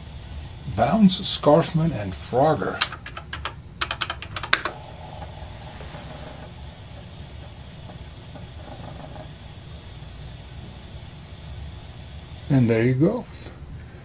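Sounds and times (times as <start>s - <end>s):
floppy disk drive running: 0.0s - 13.6s
keyboard keys clicking: 2.8s - 4.7s.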